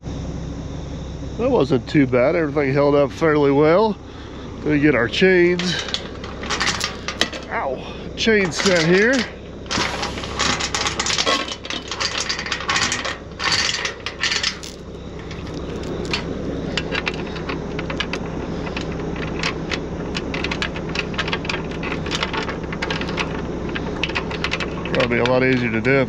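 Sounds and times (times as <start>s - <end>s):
steady low hum: 0.0s - 26.0s
metal chains clinking: 5.6s - 7.6s, 8.4s - 18.2s.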